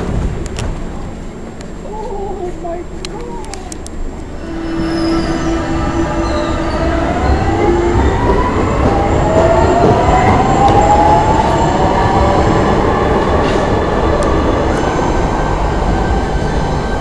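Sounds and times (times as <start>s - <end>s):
subway train rumbling: 0.0s - 17.0s
train whine rising in pitch: 4.1s - 17.0s.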